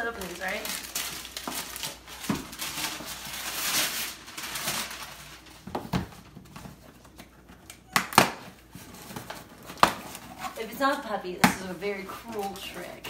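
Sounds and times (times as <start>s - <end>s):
wrapping paper rustling: 0.0s - 7.9s, 8.5s - 13.0s.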